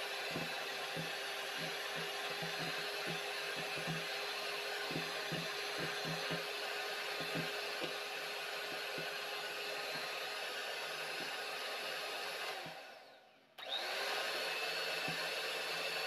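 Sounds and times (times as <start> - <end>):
electric hand mixer whisking: 0.0 - 16.0
soft knocks: 0.4 - 4.2, 4.8 - 6.5, 7.2 - 8.0.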